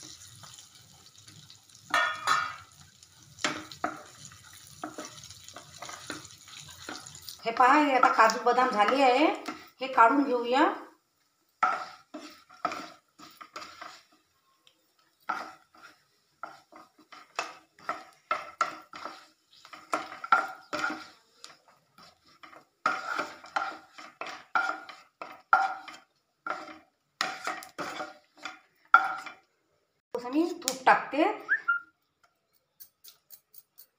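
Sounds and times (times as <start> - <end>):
spatula scraping a pan: 0.0 - 10.4, 11.5 - 29.4.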